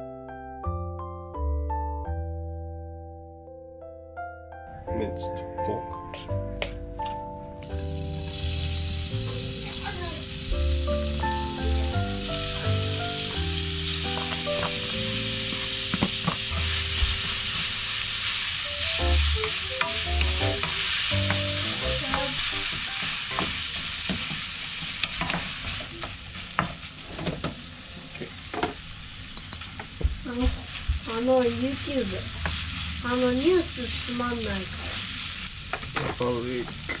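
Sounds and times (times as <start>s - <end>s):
meat sizzling in frying pan: 7.6s - 37.0s.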